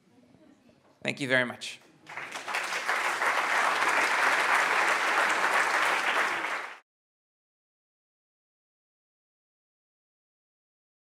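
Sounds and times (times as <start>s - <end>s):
audience applauding: 2.1s - 6.8s.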